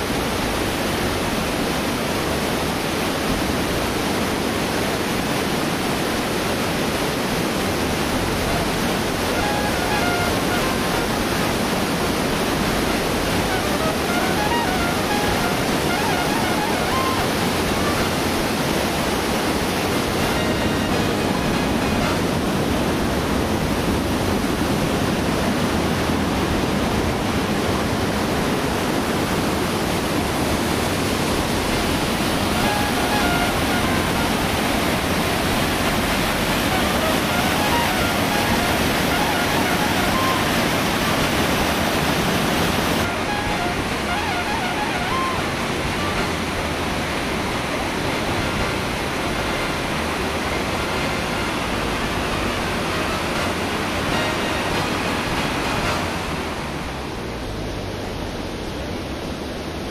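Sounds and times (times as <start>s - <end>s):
white water rushing: 0.0s - 59.9s.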